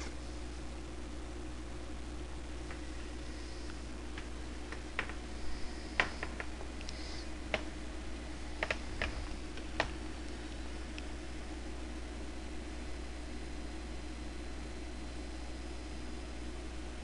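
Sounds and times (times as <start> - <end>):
steady low hum: 0.0 - 17.0
thin covering material crackling: 3.8 - 11.2.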